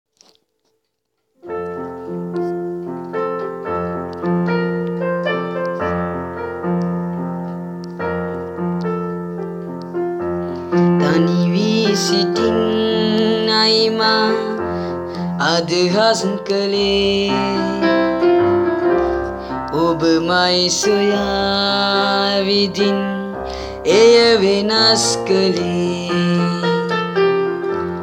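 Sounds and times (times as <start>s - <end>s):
slow piano music: 1.4s - 28.0s
person singing: 10.6s - 28.0s.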